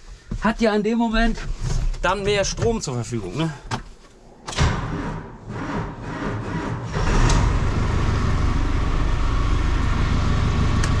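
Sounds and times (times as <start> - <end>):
diesel engine cranking and idling: 4.6 - 11.0.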